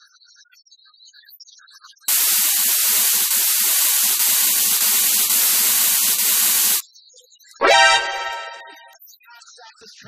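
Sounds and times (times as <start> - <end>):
steam hissing: 2.1 - 6.8.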